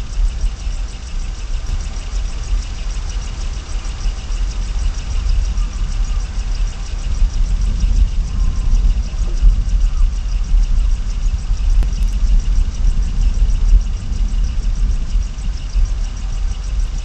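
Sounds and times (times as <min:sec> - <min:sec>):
faint rapid ticking: 0:00.0 - 0:17.0
loud low rumble: 0:04.5 - 0:17.0.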